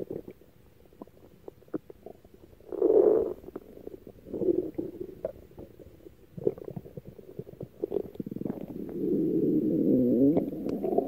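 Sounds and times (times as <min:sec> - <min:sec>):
stomach growling: 0:00.0 - 0:11.0.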